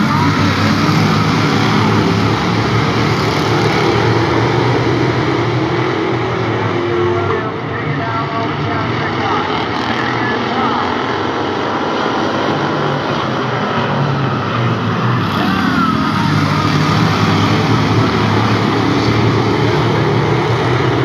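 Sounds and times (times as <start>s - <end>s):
race car engines: 0.0s - 21.0s.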